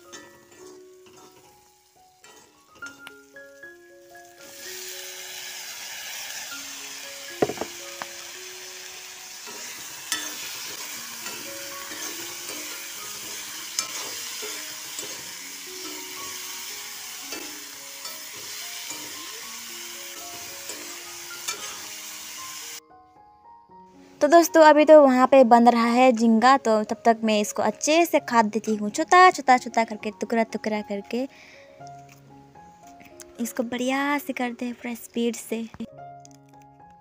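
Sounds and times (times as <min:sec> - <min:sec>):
loud steady sizzle: 0:00.0 - 0:22.8
metal spatula clinking against wok: 0:00.1 - 0:01.6, 0:02.2 - 0:03.2, 0:09.5 - 0:10.6, 0:11.2 - 0:15.2, 0:17.3 - 0:19.3, 0:20.6 - 0:21.8.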